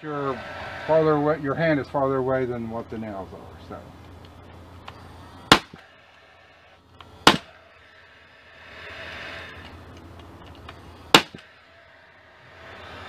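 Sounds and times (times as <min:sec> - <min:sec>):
soft air hiss: 0:00.0 - 0:13.0
nail gun firing: 0:05.5 - 0:05.8, 0:07.2 - 0:07.5, 0:11.1 - 0:11.5.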